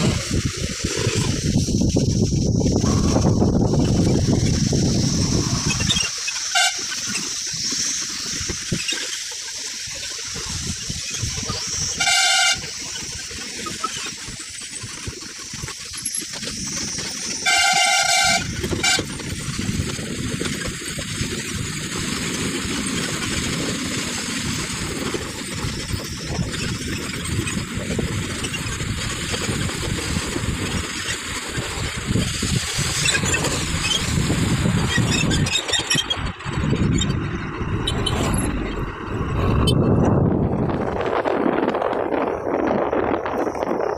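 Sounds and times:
vehicle driving on dirt road: 0:00.0 - 0:43.9
vehicle horn beeping: 0:06.5 - 0:06.9, 0:12.0 - 0:12.7, 0:17.4 - 0:19.1.

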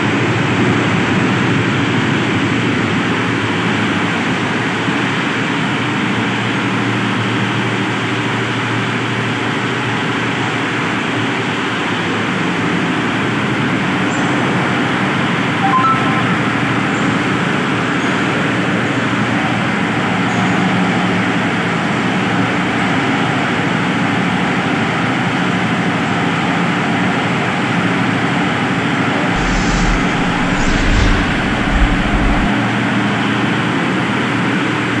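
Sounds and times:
low bumps: 0:29.4 - 0:32.5.

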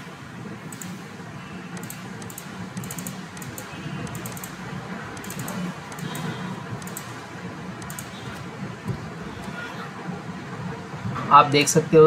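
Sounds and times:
low background hum: 0:00.0 - 0:12.0
keyboard and mouse clicking: 0:00.7 - 0:01.0, 0:01.8 - 0:08.5.

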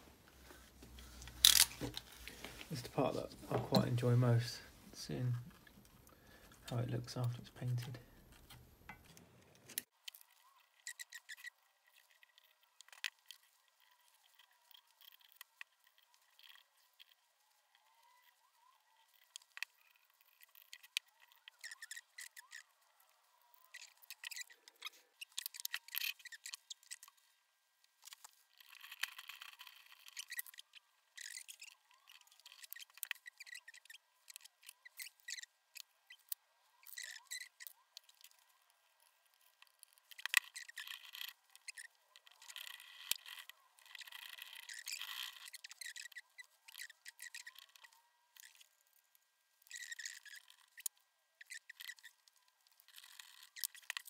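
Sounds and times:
tape peeling and crumpling: 0:00.5 - 0:03.3
metal parts clicking: 0:01.2 - 0:02.1.

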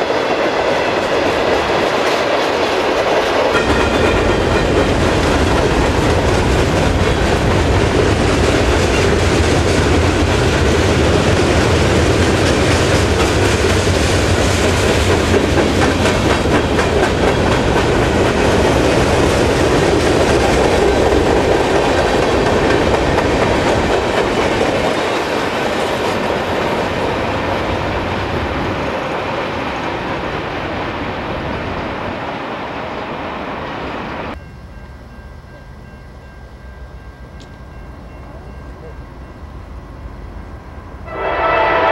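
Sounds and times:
freight train rolling past: 0:00.0 - 0:41.9
wheels clicking over rail joints: 0:01.6 - 0:28.0.

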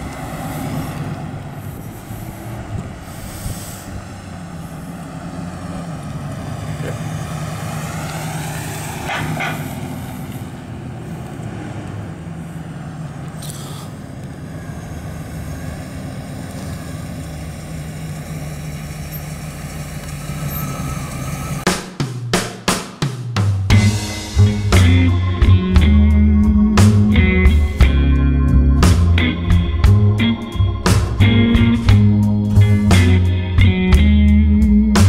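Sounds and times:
truck engine driving past: 0:00.0 - 0:21.7, 0:23.7 - 0:35.0
music with sharp drum hits: 0:21.7 - 0:26.2, 0:30.8 - 0:34.2.

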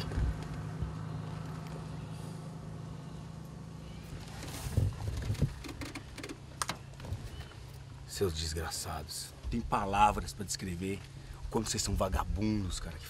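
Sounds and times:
pickup truck engine humming: 0:00.0 - 0:08.7.

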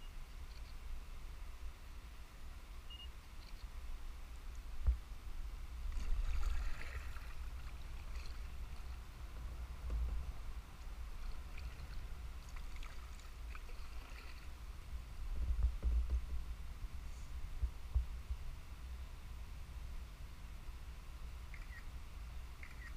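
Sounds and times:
steady low rumble: 0:00.0 - 0:22.9
kayak paddle splashing water: 0:05.8 - 0:09.2, 0:11.2 - 0:14.6.

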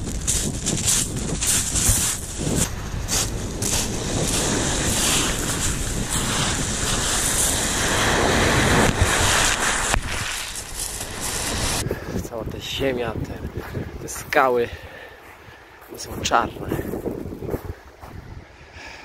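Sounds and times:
sea waves washing onto shore: 0:00.0 - 0:11.8
wind buffeting microphone: 0:00.0 - 0:19.0.

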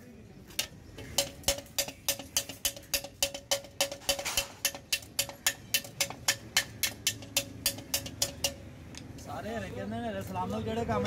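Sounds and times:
hammer striking metal: 0:00.6 - 0:08.8.

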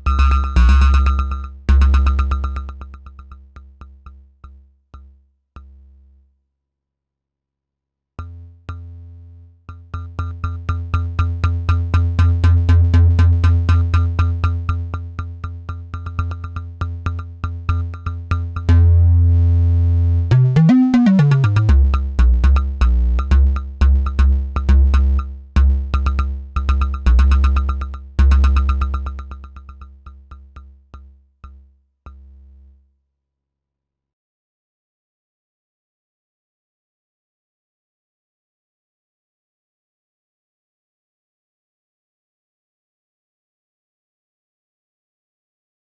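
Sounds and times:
synthesizer bass notes: 0:00.0 - 0:03.3, 0:16.0 - 0:30.0
synthesizer tone sweeping in pitch: 0:20.3 - 0:21.8.

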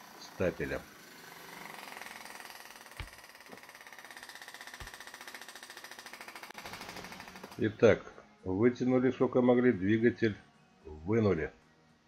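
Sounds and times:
hydraulic pump pulsing: 0:00.0 - 0:07.8.

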